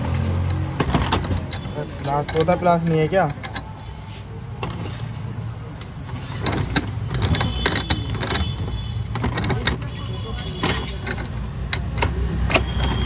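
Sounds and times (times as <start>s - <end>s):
metal tools clinking: 0.4s - 3.9s, 6.1s - 13.0s.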